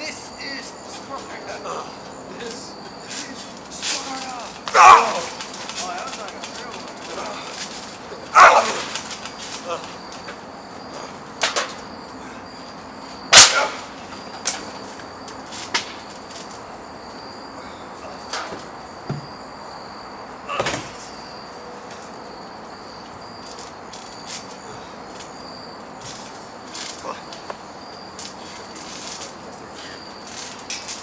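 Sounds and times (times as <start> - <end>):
insects chirring: 0.0 - 31.0
knocks and thuds on trampoline: 20.5 - 21.1.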